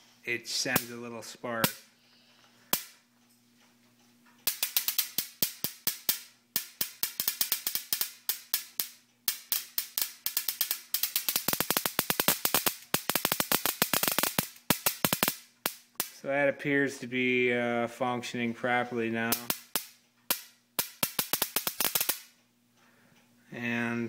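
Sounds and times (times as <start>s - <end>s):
high-voltage sparks snapping: 0.6s - 1.0s, 4.4s - 16.3s, 19.2s - 22.4s.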